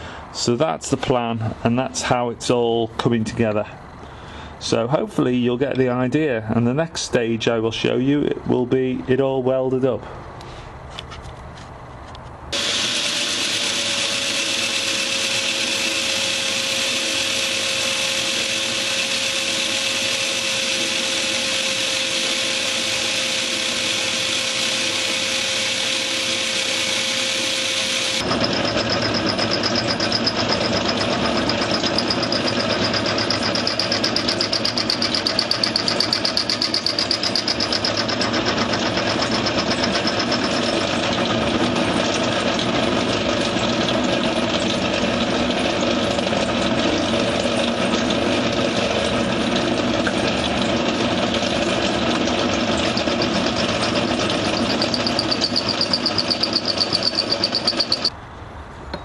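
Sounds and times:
metal lathe running: 0:12.5 - 0:58.2.

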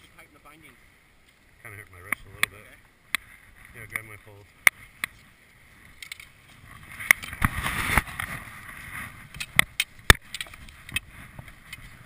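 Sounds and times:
skis scraping in snow: 0:05.2 - 0:09.4
ski gear clacking together: 0:05.9 - 0:12.0.

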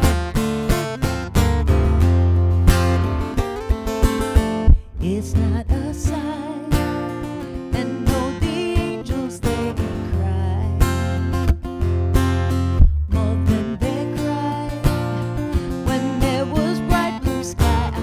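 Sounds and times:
acoustic guitar strummed: 0:00.0 - 0:18.0
woman singing with vibrato: 0:04.8 - 0:11.0, 0:13.1 - 0:18.0.

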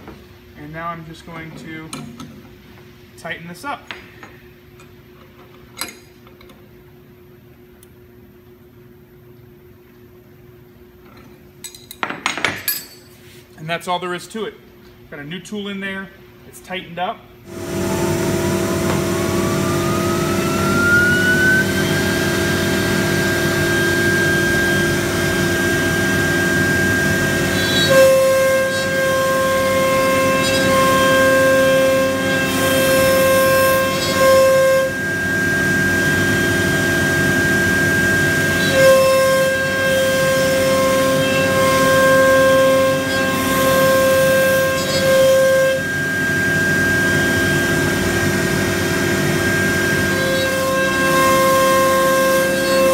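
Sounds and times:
machine hum: 0:17.2 - 0:52.9
router spindle whine: 0:17.5 - 0:52.9
stuttering cutting whine: 0:17.5 - 0:52.9.

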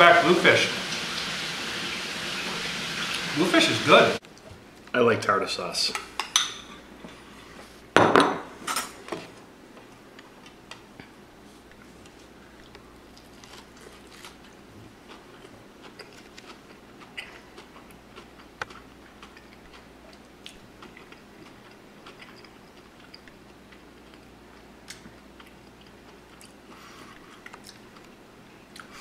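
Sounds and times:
person chewing fried fish: 0:11.7 - 0:29.0.

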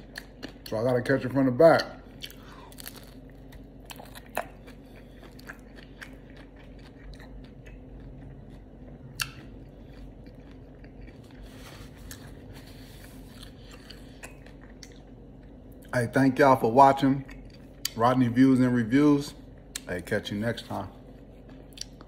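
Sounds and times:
taco shell crunching: 0:02.2 - 0:16.0.

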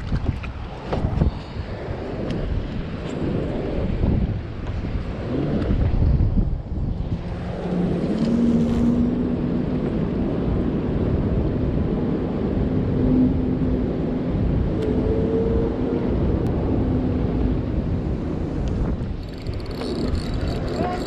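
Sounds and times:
wind on microphone: 0:00.0 - 0:21.0
boat motor humming: 0:06.6 - 0:11.4, 0:12.8 - 0:21.0.

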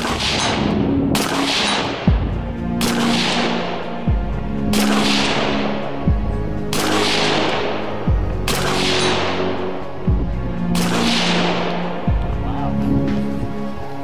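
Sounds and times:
rifle shots: 0:00.0 - 0:03.7, 0:04.7 - 0:05.7, 0:06.7 - 0:07.8, 0:08.4 - 0:09.5, 0:10.7 - 0:11.8
electronic music: 0:00.0 - 0:14.0.

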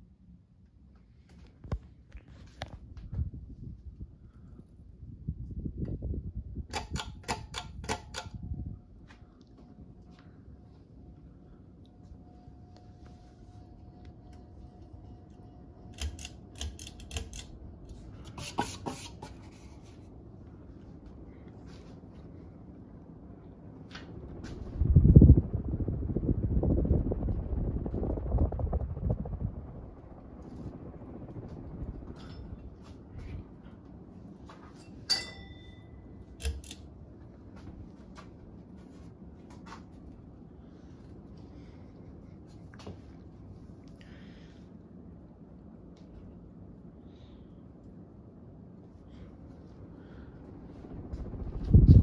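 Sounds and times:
ceiling fan running: 0:00.0 - 0:52.0
sharp metallic clink: 0:34.8 - 0:36.8.

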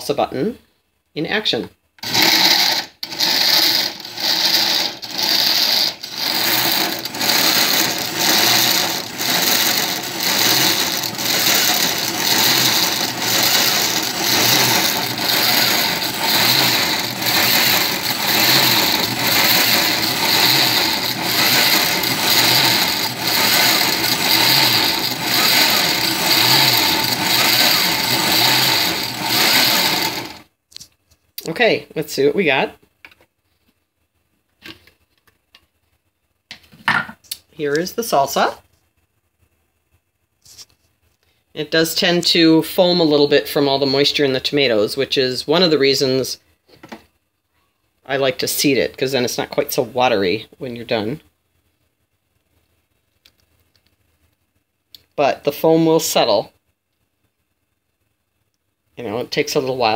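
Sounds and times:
blender pulsing: 0:02.0 - 0:30.4.

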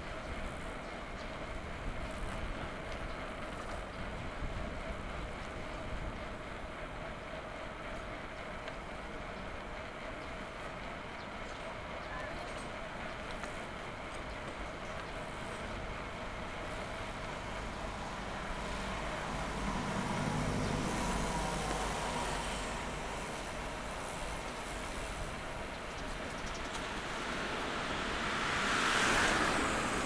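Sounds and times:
passing road traffic: 0:12.7 - 0:30.0.

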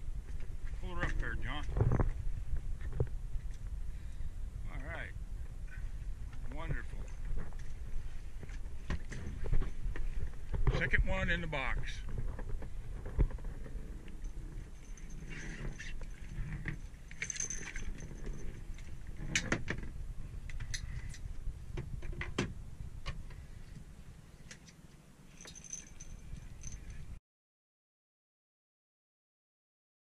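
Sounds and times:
low steady rumble: 0:00.0 - 0:27.2
metal tackle clinking: 0:14.2 - 0:19.5, 0:25.3 - 0:27.1.

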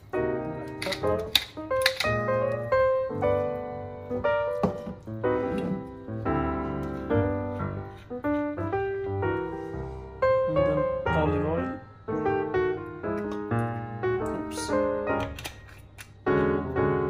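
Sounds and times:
background piano music: 0:00.0 - 0:17.0
pepper grinder clicks: 0:15.2 - 0:16.2.

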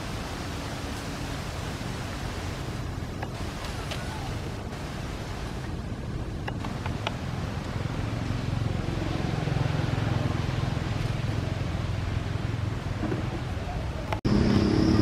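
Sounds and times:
vehicle engine hum: 0:06.6 - 0:15.0.

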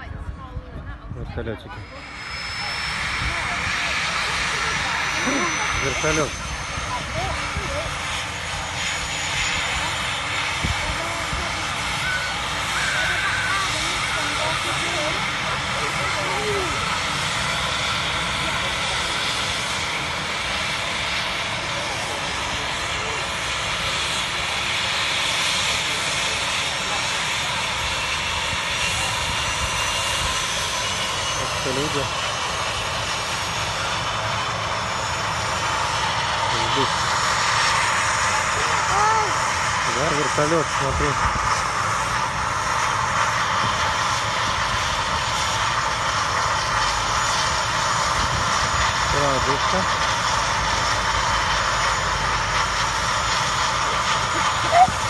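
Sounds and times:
helicopter turbine engines running: 0:00.0 - 0:55.0.

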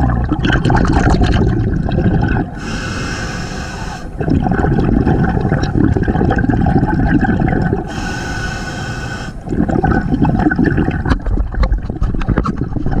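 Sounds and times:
exhaled bubbles gurgling underwater: 0:00.0 - 0:13.0
regulator inhalation hiss: 0:02.6 - 0:04.2, 0:07.9 - 0:09.4.

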